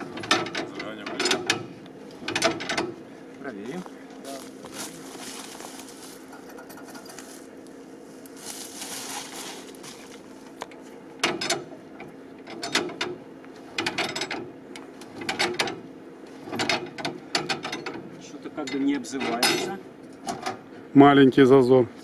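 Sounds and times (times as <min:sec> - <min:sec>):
engine crank clicking and rattling: 0:00.0 - 0:03.0, 0:06.3 - 0:07.4, 0:10.5 - 0:20.6.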